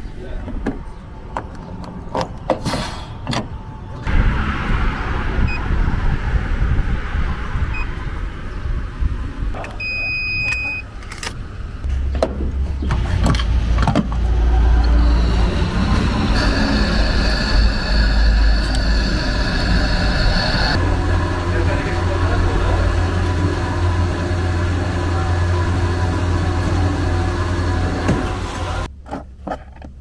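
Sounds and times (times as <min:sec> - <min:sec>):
small car engine rumble: 0:03.0 - 0:28.9
electronic beep: 0:07.7 - 0:07.9, 0:09.8 - 0:10.8.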